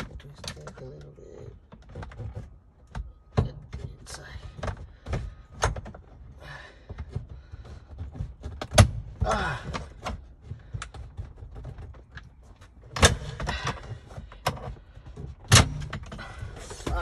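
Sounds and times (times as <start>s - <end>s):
plastic parts knocking and clicking: 0.0s - 17.0s
plastic scraping and rattling: 0.0s - 17.0s.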